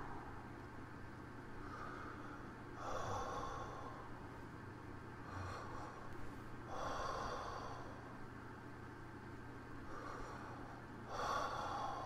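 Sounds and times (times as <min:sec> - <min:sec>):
man breathing deeply: 0:01.6 - 0:04.2, 0:05.2 - 0:08.2, 0:09.8 - 0:12.0.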